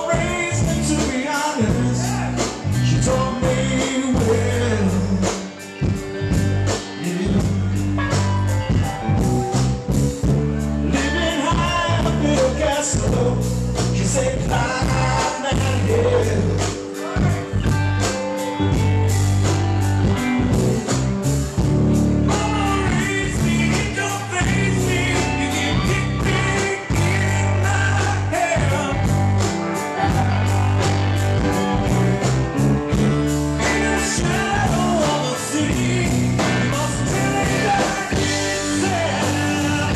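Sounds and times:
man singing: 0.0 - 5.6, 6.8 - 7.8, 10.8 - 17.7, 22.2 - 30.6, 33.5 - 39.9
electric and acoustic guitars: 0.0 - 39.9.

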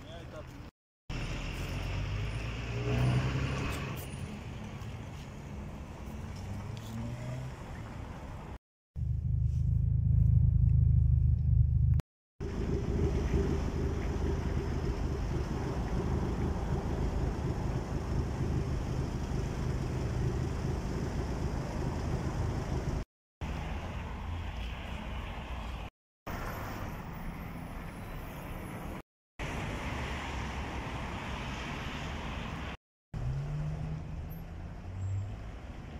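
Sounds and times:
passing cars traffic: 1.1 - 8.6, 12.4 - 35.9
low rumble: 9.0 - 23.0.

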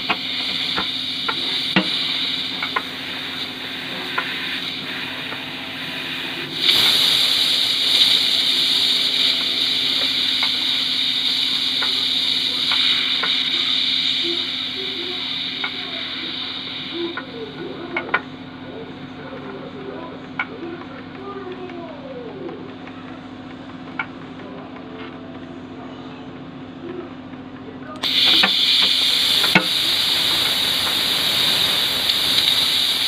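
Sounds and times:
transmission fluid spattering: 0.0 - 18.3, 28.0 - 33.0
transmission hissing: 0.0 - 21.2, 28.0 - 33.0.

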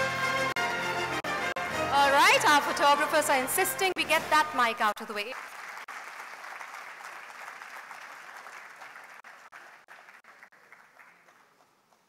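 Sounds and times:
audience applause: 5.1 - 12.0.

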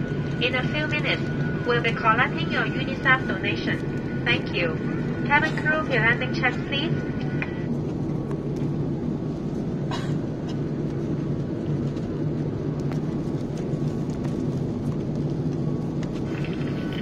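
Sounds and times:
airflow over fuselage: 0.0 - 17.0
airplane engines rumbling: 0.0 - 17.0.

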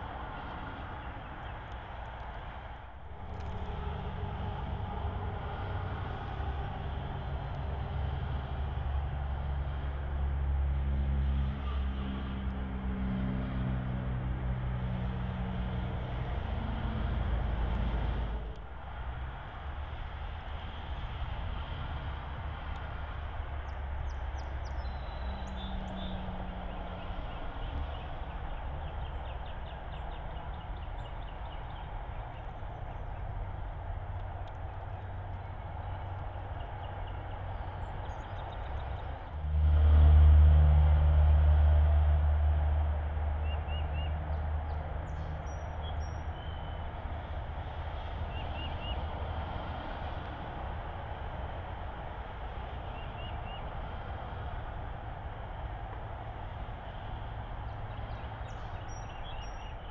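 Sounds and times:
low engine-like drone: 0.0 - 59.9.

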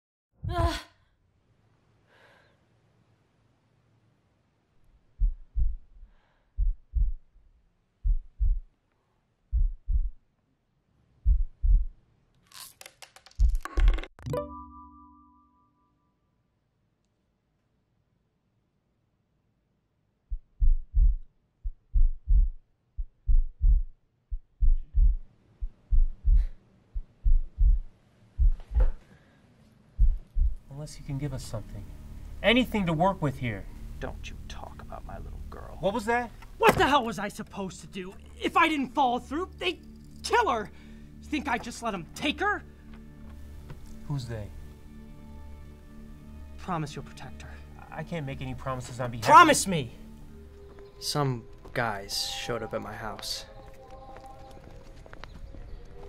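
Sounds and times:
faint breaths: 2.0 - 2.7, 6.0 - 7.1, 28.4 - 30.6, 40.7 - 41.2
heartbeat thumps: 5.1 - 7.4, 8.0 - 8.7, 9.5 - 10.2, 11.2 - 12.0, 20.3 - 29.0, 30.0 - 30.7.

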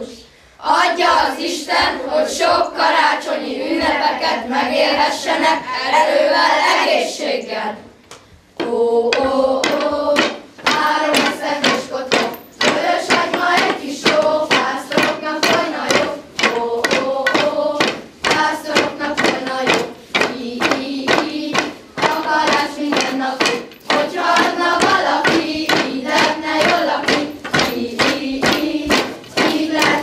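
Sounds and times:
children singing in unison: 0.0 - 8.0, 8.6 - 30.0
sharp rhythmic knocks: 8.6 - 30.0.

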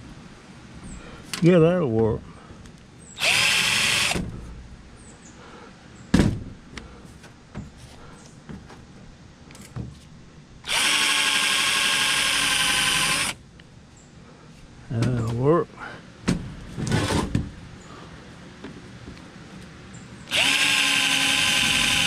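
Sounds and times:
cordless drill boring into metal: 3.2 - 4.2, 10.6 - 13.4, 20.3 - 22.0.

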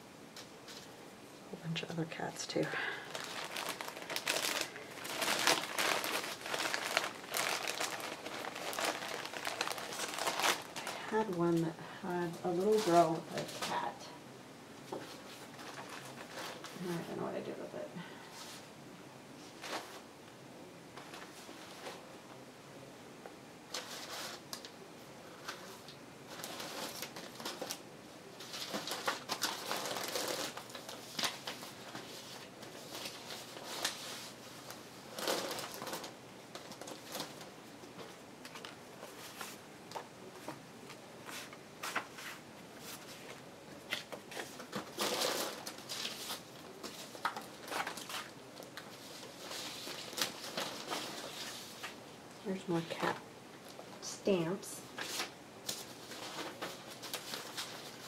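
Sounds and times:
paper rustling and crinkling: 2.9 - 11.7, 12.3 - 14.0, 14.8 - 17.2, 19.4 - 20.1, 20.9 - 22.1, 23.7 - 52.0, 54.9 - 58.0.

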